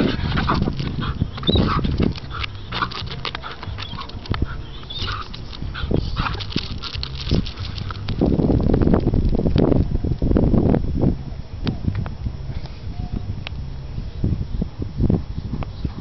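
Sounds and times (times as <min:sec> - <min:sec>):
dog whimpering: 0:01.0 - 0:06.4.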